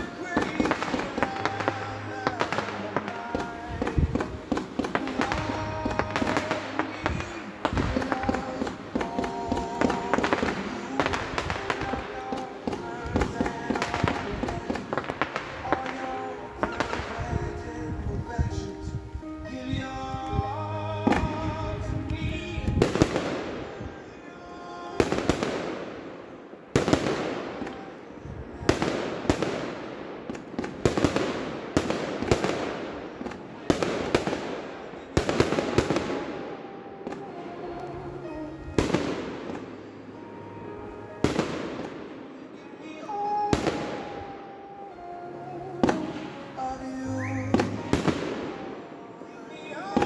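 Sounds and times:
firework shells bursting: 0:00.0 - 0:17.3.

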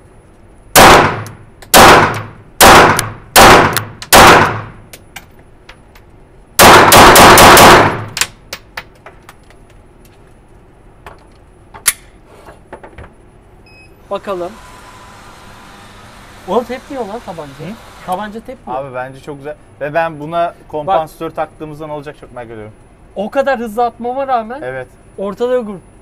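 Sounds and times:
pistol shots echoing: 0:00.8 - 0:04.8, 0:06.6 - 0:08.2.

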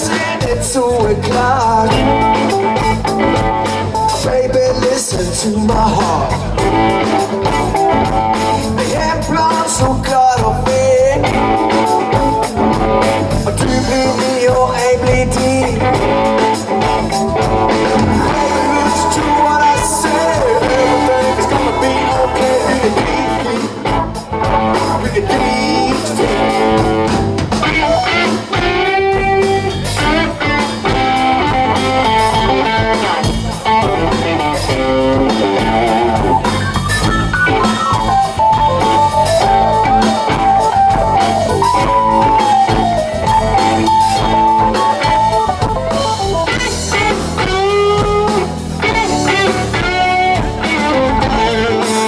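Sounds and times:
bass guitar: 0:00.0 - 0:52.0
drum kit: 0:00.0 - 0:52.0
electric guitar: 0:00.0 - 0:52.0.

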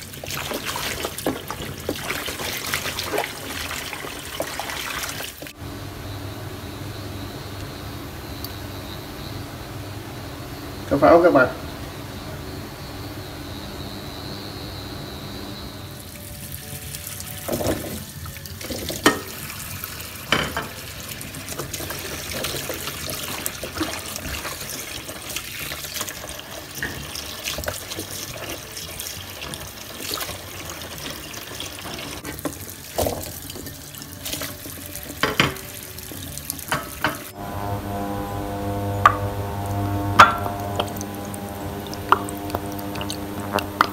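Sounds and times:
tap water running into basin: 0:00.0 - 0:05.6, 0:16.0 - 0:37.9, 0:38.8 - 0:43.9.

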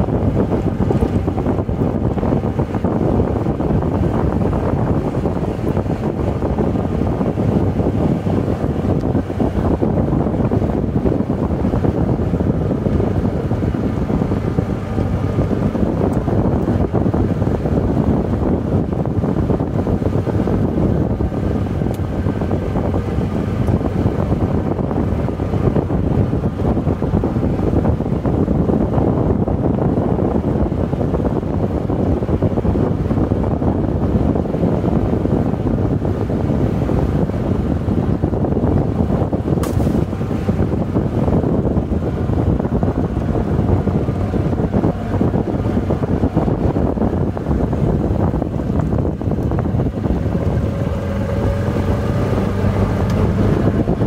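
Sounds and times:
golf cart tyres rumbling on dirt: 0:00.0 - 0:54.0
wind buffeting microphone: 0:00.0 - 0:54.0.

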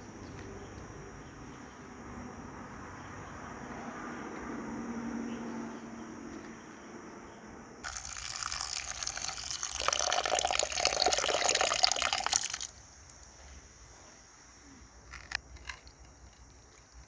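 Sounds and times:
water pouring onto lentils: 0:07.8 - 0:13.2.

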